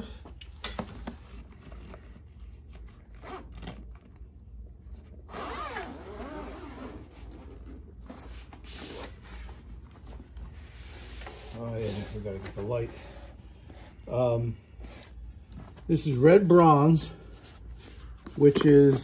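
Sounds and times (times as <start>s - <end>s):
zippers being pulled open: 3.1s - 4.0s, 5.3s - 9.5s.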